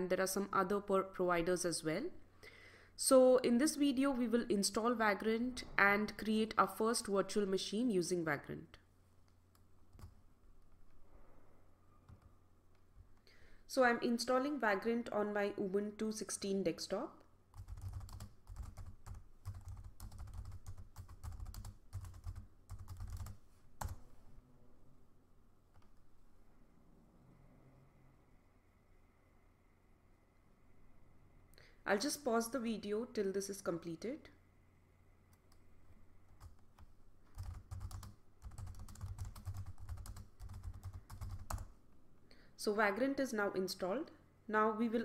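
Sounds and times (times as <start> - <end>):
keyboard typing: 9.9 - 10.2, 17.5 - 24.0, 36.3 - 41.7.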